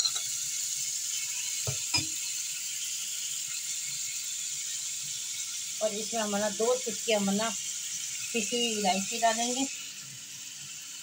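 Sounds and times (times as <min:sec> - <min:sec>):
utensils clinking against pan: 0:00.0 - 0:00.4, 0:01.7 - 0:02.2
carrot sizzling in oil: 0:00.0 - 0:11.0.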